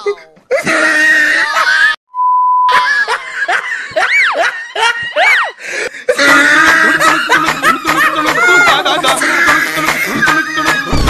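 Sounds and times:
steady one-tone beep: 2.1 - 2.7.

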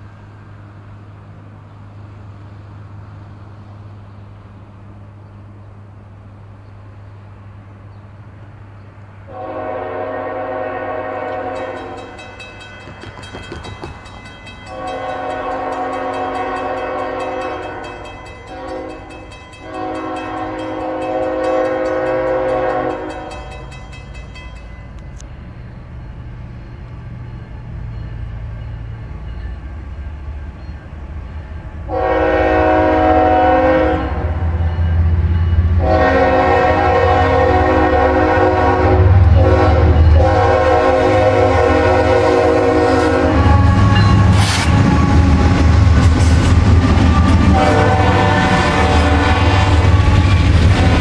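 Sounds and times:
diesel locomotive rumble: 0.0 - 51.0
locomotive horn blasts: 9.3 - 12.3, 14.7 - 23.6, 31.9 - 34.9, 35.7 - 45.6, 47.0 - 51.0
wheel-on-rail noise: 11.1 - 31.9, 39.2 - 51.0.

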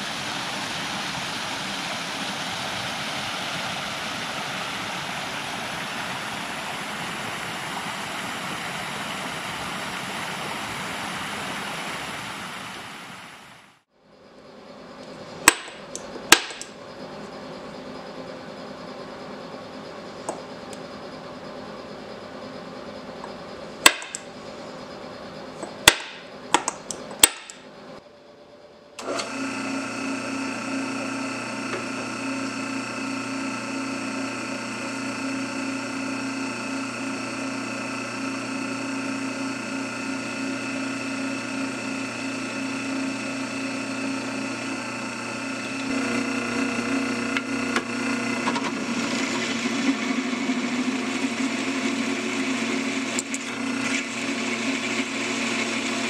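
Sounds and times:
drill press motor humming: 14.1 - 56.0
drill cutting into metal: 29.0 - 56.0.

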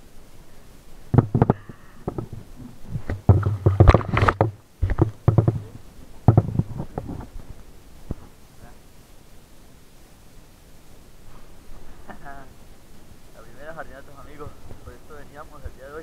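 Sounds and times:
muffled underwater knocks and rumbles: 1.1 - 7.3.

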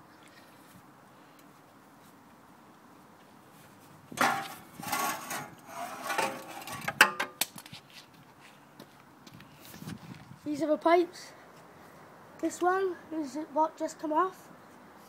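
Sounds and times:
exhaust pipe scraping against metal: 4.2 - 7.2.

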